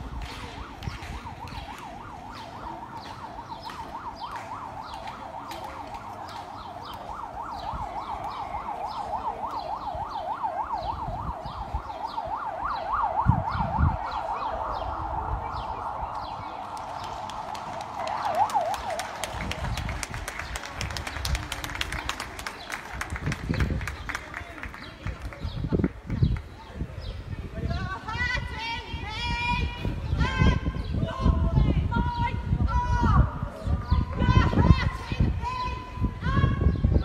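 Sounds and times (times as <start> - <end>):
siren yelping: 0.0 - 19.9.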